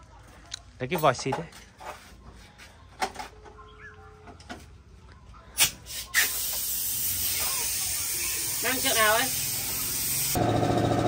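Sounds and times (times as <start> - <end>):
compressed air gun hissing: 5.6 - 10.4.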